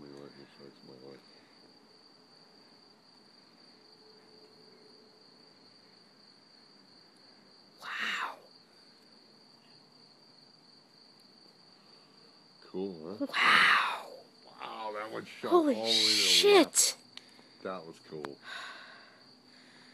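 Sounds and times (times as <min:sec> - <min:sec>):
crickets trilling: 0:00.0 - 0:19.9
short voice sound: 0:15.8 - 0:16.6.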